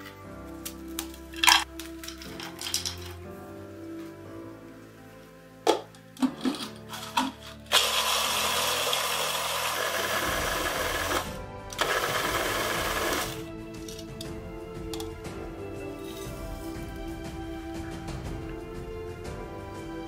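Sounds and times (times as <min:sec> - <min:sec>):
electric chopper motor grinding: 0:07.7 - 0:13.4.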